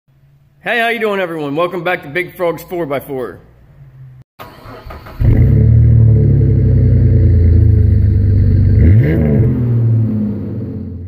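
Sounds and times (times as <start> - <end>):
engine revving: 3.9 - 11.0
vehicle engine running: 5.2 - 11.0.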